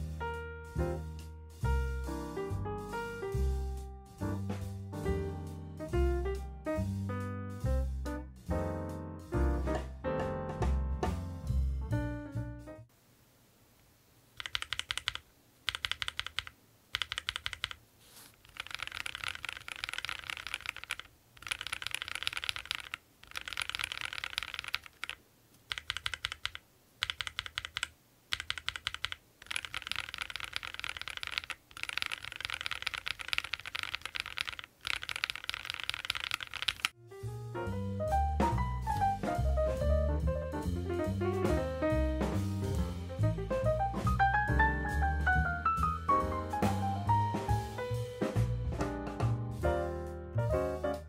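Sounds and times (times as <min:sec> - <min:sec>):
mechanical keyboard typing: 0:14.4 - 0:17.8, 0:18.4 - 0:37.0.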